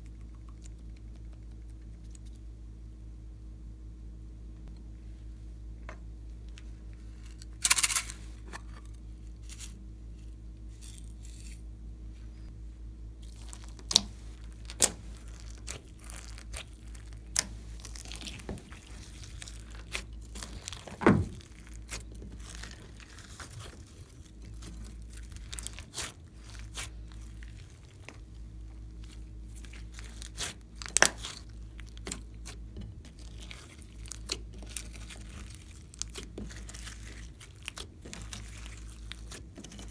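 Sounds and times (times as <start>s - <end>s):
low steady hum: 0.0s - 39.9s
slime popping and crackling: 13.2s - 39.9s.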